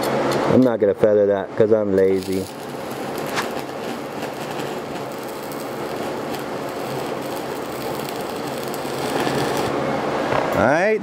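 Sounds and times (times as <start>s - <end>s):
welding arc crackling: 2.0s - 9.8s.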